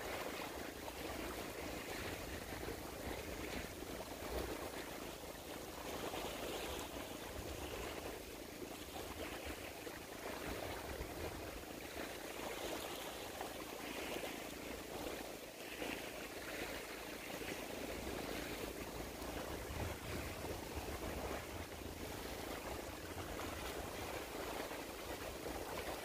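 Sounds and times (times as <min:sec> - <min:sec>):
wind: 0:00.0 - 0:26.0
lapping water: 0:10.3 - 0:26.0.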